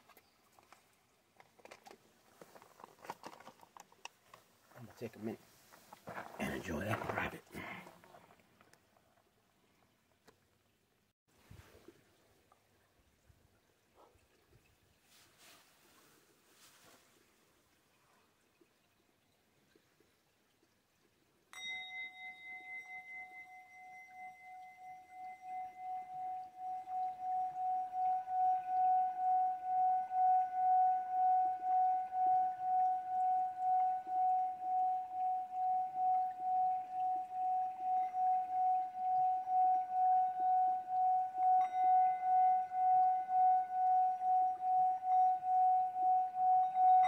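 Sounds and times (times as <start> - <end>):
singing bowl ringing tone: 21.5 - 47.0
singing bowl struck with mallet: 21.6 - 47.0.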